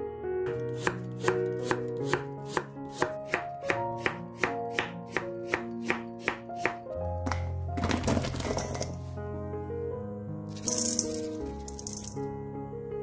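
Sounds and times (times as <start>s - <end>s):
background music: 0.0s - 13.0s
knife strikes on cutting board: 0.7s - 7.5s.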